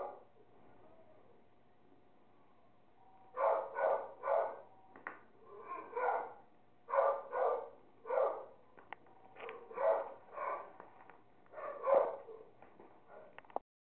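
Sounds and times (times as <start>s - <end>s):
dogs barking: 0.0s - 0.3s, 3.4s - 4.7s, 5.5s - 8.6s, 9.4s - 10.8s, 11.5s - 13.4s.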